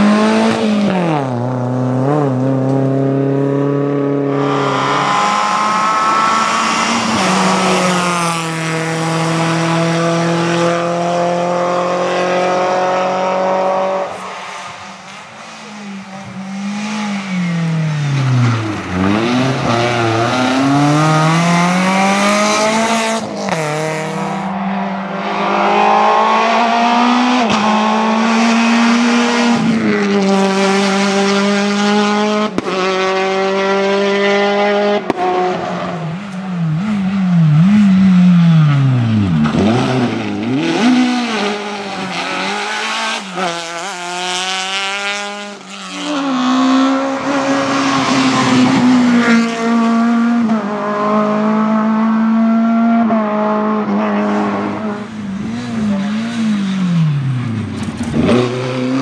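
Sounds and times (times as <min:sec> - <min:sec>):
rally car engines revving hard: 0:00.0 - 0:59.0.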